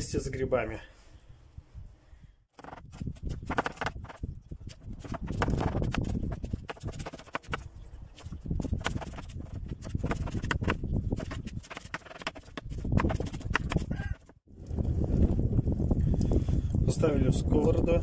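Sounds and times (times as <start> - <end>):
knife chopping on wooden board: 8.8 - 13.9.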